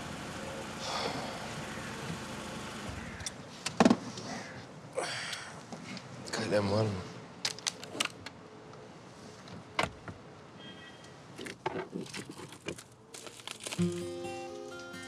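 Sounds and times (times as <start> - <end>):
pistol clicks and rustles: 7.4 - 8.8
soft music: 13.8 - 15.0.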